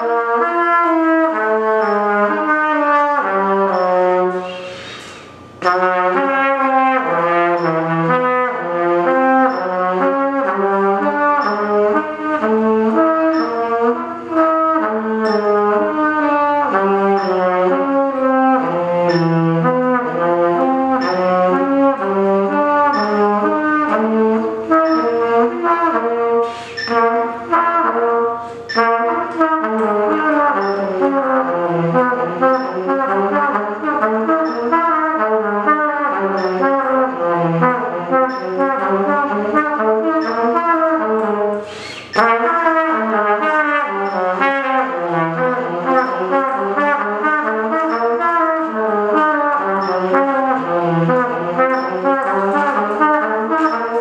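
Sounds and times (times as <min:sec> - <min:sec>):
trumpet lip slurs: 0:03.7 - 0:05.8, 0:26.4 - 0:27.2, 0:41.5 - 0:42.3
player breathing: 0:28.4 - 0:28.7.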